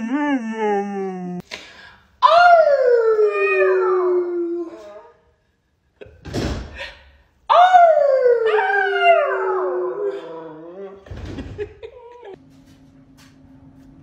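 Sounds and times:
puppy howling: 7.5 - 11.0.

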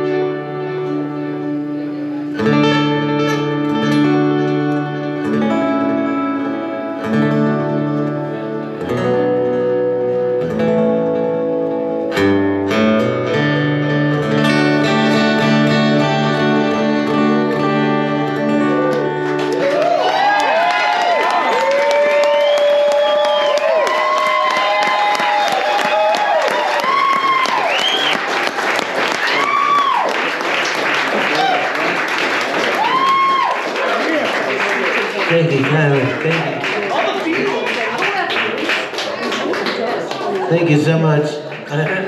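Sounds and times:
acoustic guitar chords: 0.0 - 20.3, 35.0 - 37.7
audience clapping and cheering: 18.4 - 42.0.

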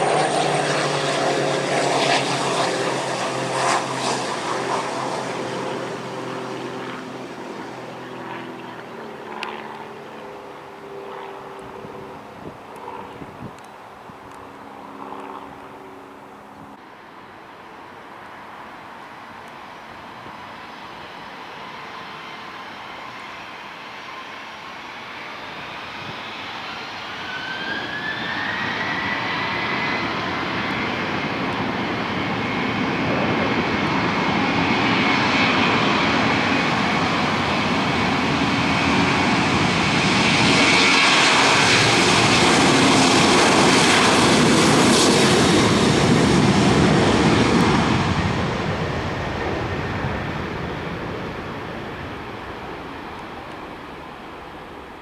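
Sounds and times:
jet taking off: 0.0 - 17.3, 18.2 - 55.0
jet engines spooling up: 20.7 - 55.0.

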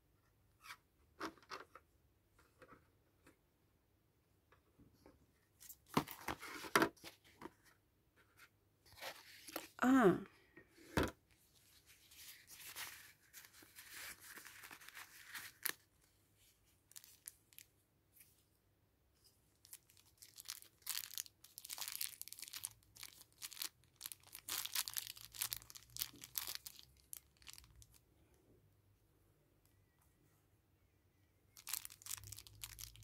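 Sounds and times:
plastic bags crinkling: 16.9 - 17.7, 19.6 - 28.0, 31.6 - 33.0.

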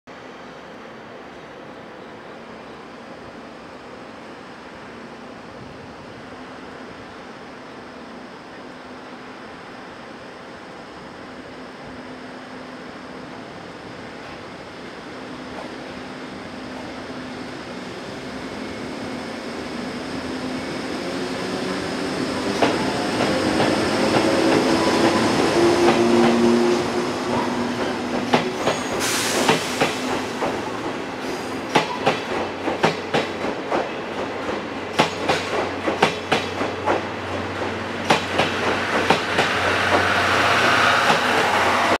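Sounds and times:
electric locomotive motor hum: 2.2 - 42.0
train wheels clacking over rail joints: 31.2 - 41.4.

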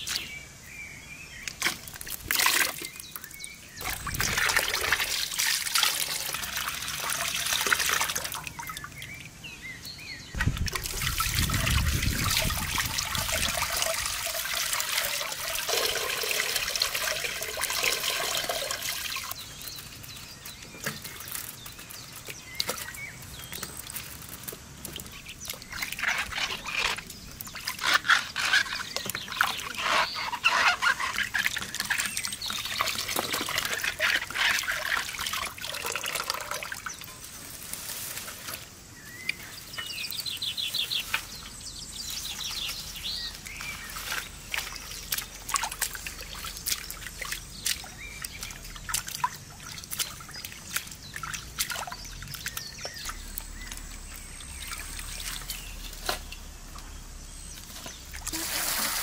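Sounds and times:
water trickling into metal basin: 1.9 - 9.3, 10.4 - 37.4, 41.0 - 59.0
hands splashing water: 42.4 - 56.5.

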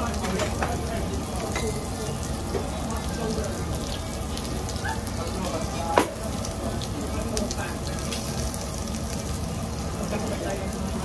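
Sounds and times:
beef sizzling on a grill: 0.0 - 11.0.

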